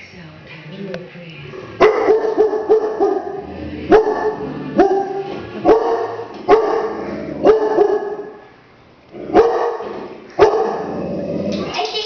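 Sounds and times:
dog barking: 0:01.8 - 0:08.4, 0:09.3 - 0:11.0.

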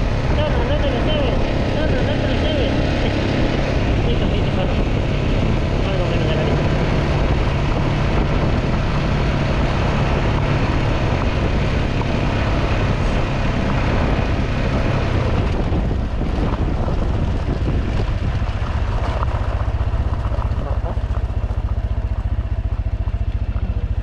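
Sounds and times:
motorcycle engine running: 0:00.0 - 0:24.0
wind noise: 0:00.0 - 0:24.0
tyres on gravel: 0:16.0 - 0:24.0.

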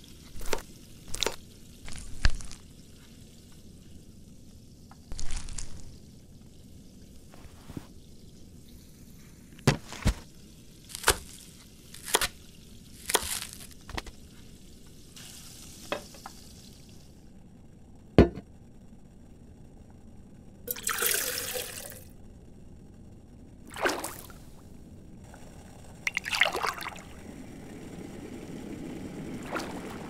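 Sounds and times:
soft hiss: 0:00.0 - 0:17.9
liquid pouring into a pot: 0:20.7 - 0:22.1, 0:23.7 - 0:24.4, 0:26.0 - 0:27.3, 0:29.3 - 0:30.0.

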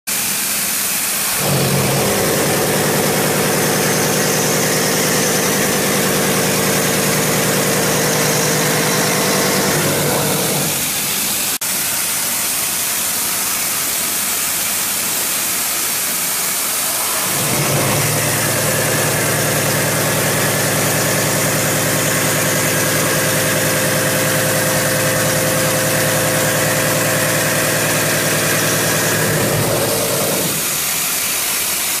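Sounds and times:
milling machine cutting hum: 0:01.2 - 0:11.6, 0:16.8 - 0:31.1.

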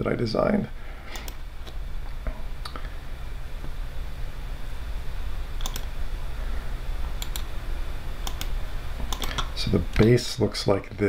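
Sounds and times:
steady low hum: 0:00.0 - 0:11.0
computer mouse clicking: 0:01.1 - 0:01.8, 0:05.6 - 0:05.9, 0:07.2 - 0:07.5, 0:08.2 - 0:10.1.

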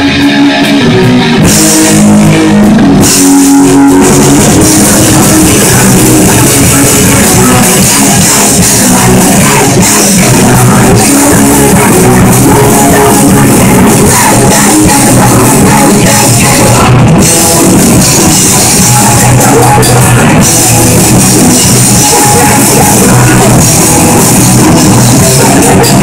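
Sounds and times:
electric guitars riffing: 0:00.0 - 0:26.0.

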